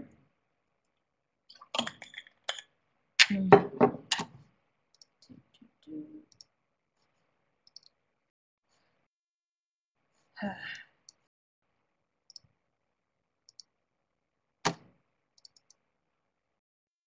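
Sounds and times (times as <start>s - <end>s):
computer clicking and knocking: 14.6s - 15.8s.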